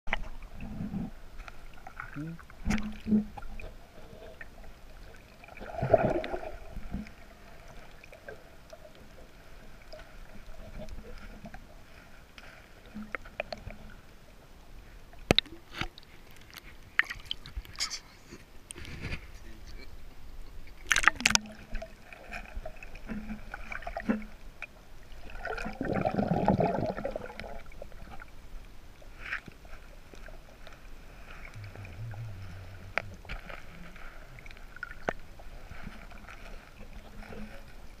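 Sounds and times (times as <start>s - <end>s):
muffled water sloshing and gurgling: 0.1s - 17.8s, 18.4s - 38.0s
rush of water: 19.5s - 38.0s.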